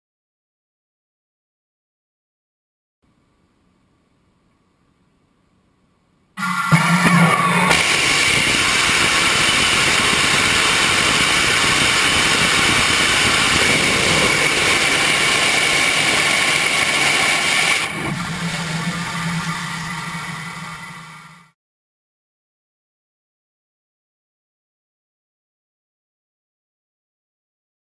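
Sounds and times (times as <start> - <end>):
low hum: 3.1 - 21.6
rocket engine roaring: 6.4 - 21.5.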